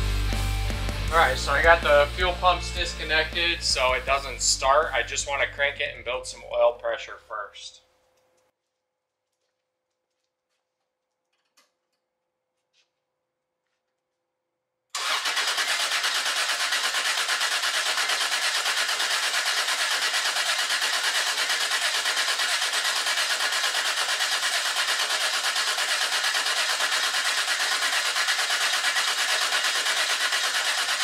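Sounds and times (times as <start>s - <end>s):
engine cranking on starter motor: 15.0s - 31.0s.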